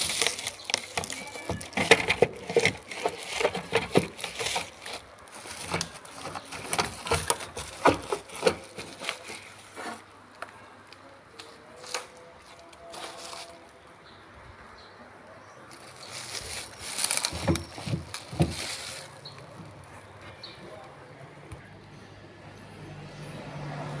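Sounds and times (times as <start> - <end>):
bubble wrap crinkling: 0.0 - 10.1, 10.9 - 13.8, 15.7 - 19.9.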